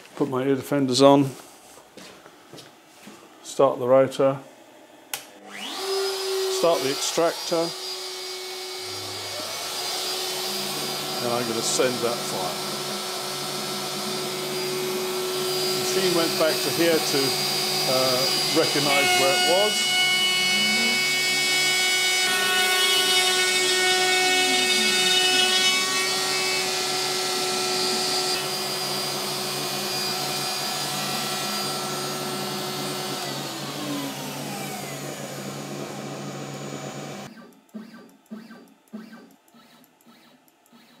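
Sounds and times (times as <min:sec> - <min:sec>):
router whining while cutting wood: 0:05.2 - 0:41.0
dust extractor running: 0:05.4 - 0:37.3.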